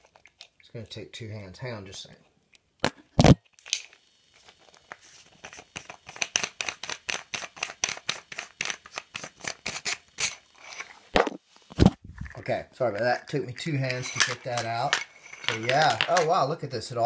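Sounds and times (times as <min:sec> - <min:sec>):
metal canister clicks and scrapes: 0:13.0 - 0:16.3.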